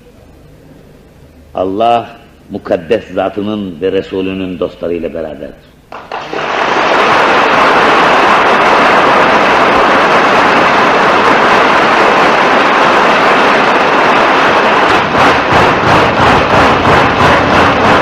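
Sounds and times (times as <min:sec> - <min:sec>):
audience applauding: 0:05.9 - 0:18.0.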